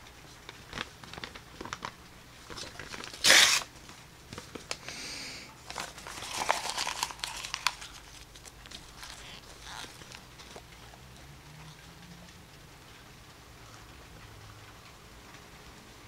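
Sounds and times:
paper crinkling: 0.2s - 5.0s, 5.6s - 11.0s
paper tearing: 2.5s - 3.7s, 5.6s - 10.2s.

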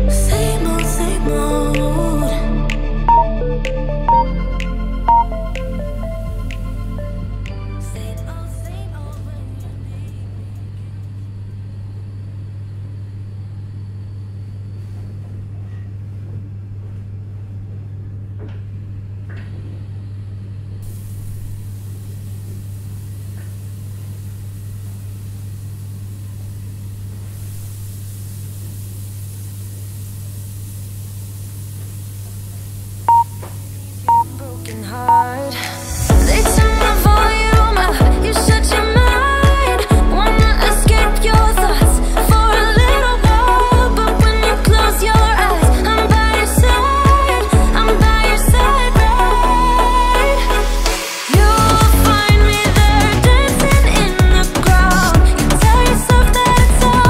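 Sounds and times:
high electronic beep: 3.1s - 6.4s, 33.1s - 33.4s, 34.1s - 34.3s
low hum with faint hiss: 3.1s - 50.4s.

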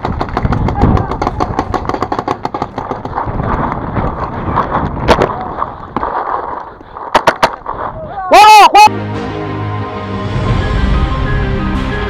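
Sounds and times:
paintball markers firing: 0.0s - 3.9s
wind rushing on microphone: 0.0s - 6.0s.

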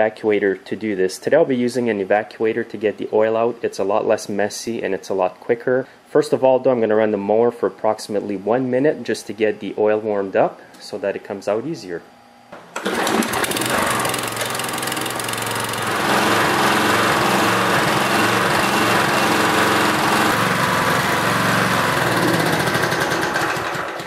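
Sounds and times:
lawnmower engine running: 12.8s - 24.0s.

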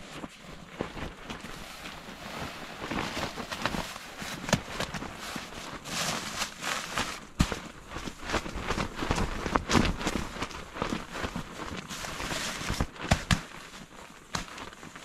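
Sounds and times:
air pad rustling and crinkling: 0.0s - 15.0s.

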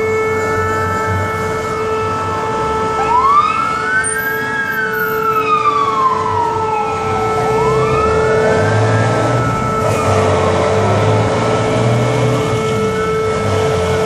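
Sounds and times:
fire engine siren wailing: 0.0s - 14.0s
truck engine running low: 5.7s - 14.0s.

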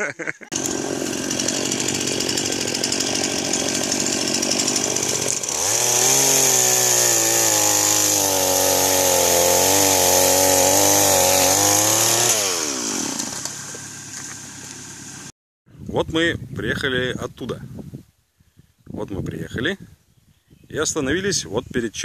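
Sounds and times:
chainsaw revving: 0.5s - 15.3s.

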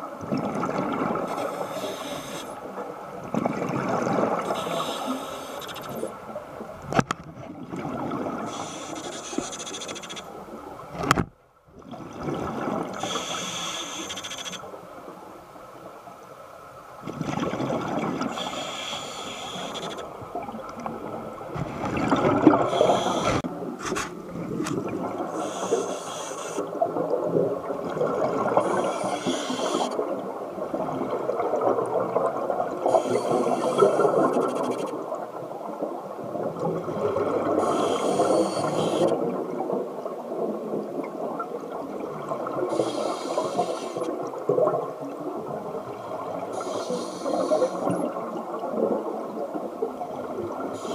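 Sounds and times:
bubbles gurgling: 0.0s - 1.3s, 2.6s - 4.9s, 7.4s - 8.5s, 17.0s - 18.4s, 20.2s - 23.7s, 24.3s - 25.4s, 26.7s - 34.7s, 36.2s - 42.9s
hissing regulator inhalation: 1.3s - 2.6s, 4.5s - 6.1s, 8.5s - 10.2s, 13.0s - 14.6s, 18.3s - 20.0s, 22.6s - 23.4s, 25.3s - 26.7s, 28.6s - 29.9s, 37.6s - 39.2s, 42.7s - 44.1s, 46.5s - 47.9s.

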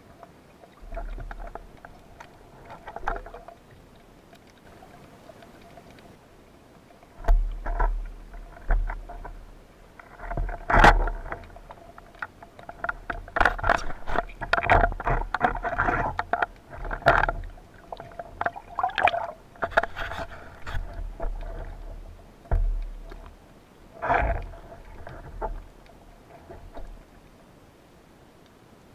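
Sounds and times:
rushing water underwater: 0.0s - 28.9s.

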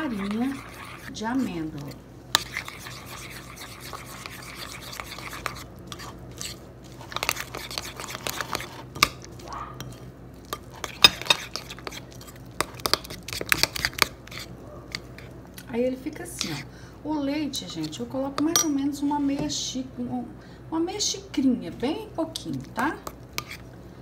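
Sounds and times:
spoon scraping batter: 0.0s - 16.7s, 22.3s - 23.7s
spoon clinking against bowl: 18.4s - 18.8s.

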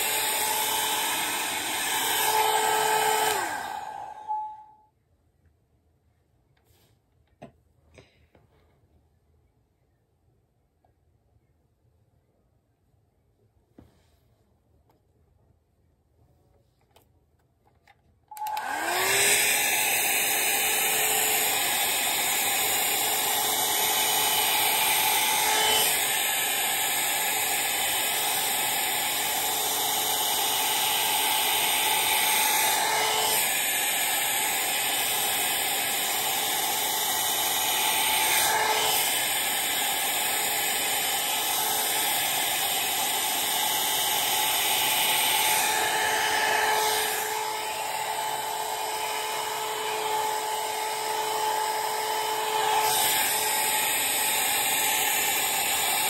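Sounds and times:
hair dryer fan whirring: 0.0s - 4.8s, 18.3s - 56.0s.

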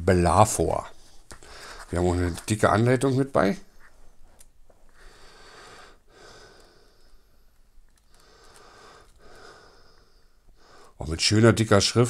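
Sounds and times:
faint nasal breathing: 0.9s - 2.0s, 4.8s - 11.0s.

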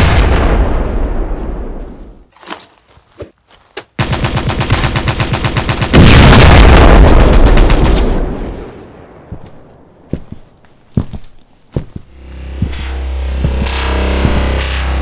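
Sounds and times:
loud rumbling explosion: 0.0s - 1.8s, 6.0s - 7.4s
machine-gun fire: 4.0s - 8.5s.

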